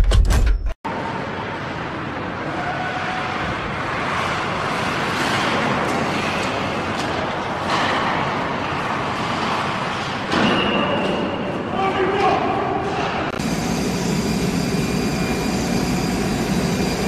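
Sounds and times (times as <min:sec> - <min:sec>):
jet engine roar: 0:13.4 - 0:17.0.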